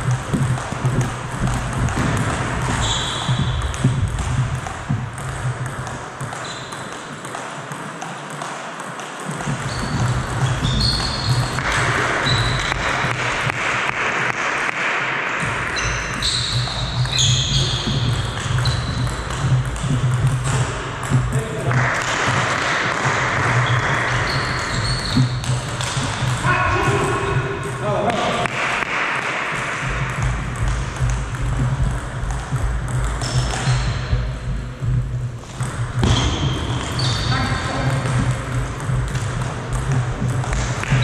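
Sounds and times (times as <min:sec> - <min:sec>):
steady low hum: 0:00.0 - 0:06.4, 0:15.4 - 0:27.8, 0:29.5 - 0:41.0
shoes squeaking on floor: 0:00.0 - 0:07.2, 0:09.3 - 0:13.2, 0:15.4 - 0:21.4, 0:23.4 - 0:26.5, 0:33.2 - 0:34.5, 0:35.4 - 0:38.7
table tennis ball clicking: 0:00.0 - 0:13.6, 0:15.5 - 0:26.5, 0:29.9 - 0:34.3, 0:35.5 - 0:41.0.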